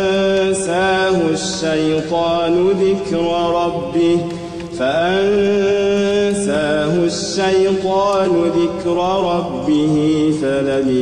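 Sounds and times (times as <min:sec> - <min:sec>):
person chanting recitation: 0:00.0 - 0:11.0.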